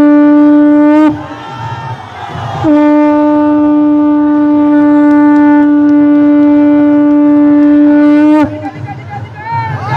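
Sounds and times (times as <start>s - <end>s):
conch shell blown: 0.0s - 1.2s, 2.6s - 8.7s.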